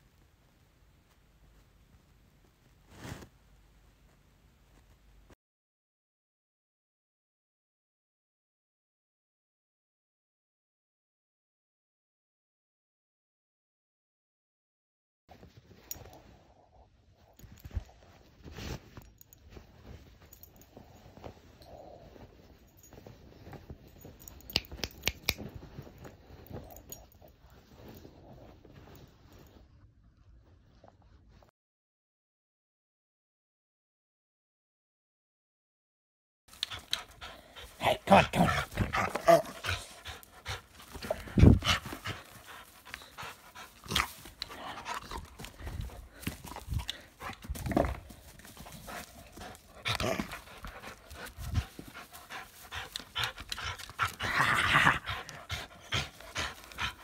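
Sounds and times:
bedding rustling: 2.5 - 5.2, 38.4 - 52.6
dog panting: 36.5 - 57.0.

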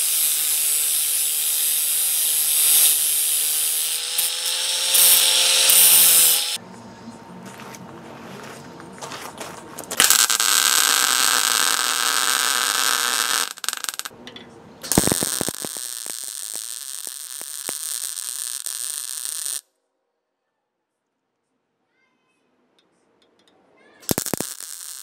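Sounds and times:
welder arc sizzling: 0.0 - 6.6, 9.9 - 14.1, 14.8 - 19.6, 24.0 - 25.0
welding arc pops: 0.0 - 6.6, 9.9 - 14.1, 14.8 - 19.6, 24.0 - 25.0.

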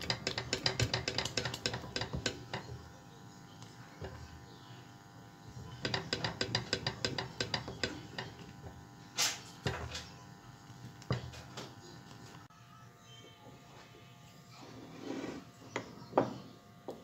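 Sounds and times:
wooden spoon knocking a saucepan: 0.0 - 2.8, 5.6 - 8.8, 11.1 - 11.4.

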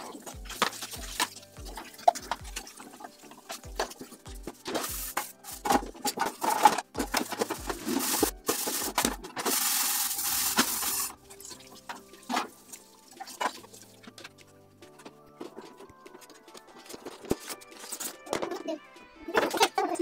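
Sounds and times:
scrubbing dishes: 0.0 - 18.6
soft background music: 0.0 - 20.0
pot and lid clattering: 3.5 - 11.2.

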